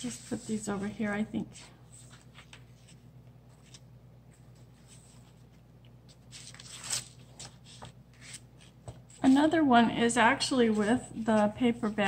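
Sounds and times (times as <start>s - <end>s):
paper rustling and sliding: 1.9s - 9.5s.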